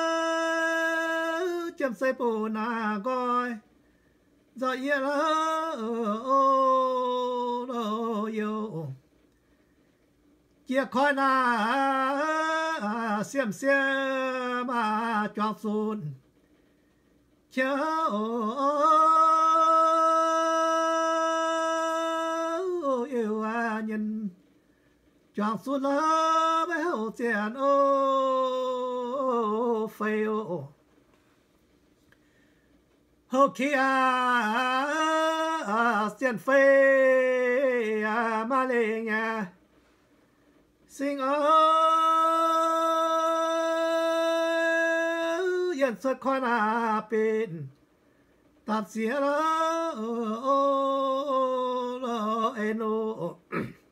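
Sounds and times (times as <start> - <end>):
person singing chanted song: 0.0 - 3.6, 25.4 - 30.7, 33.4 - 39.6, 48.8 - 53.6
man singing unaccompanied: 0.0 - 3.9, 4.5 - 9.1, 10.6 - 16.3, 17.5 - 24.4, 25.3 - 30.8, 33.2 - 39.7, 40.8 - 47.9, 48.6 - 53.9.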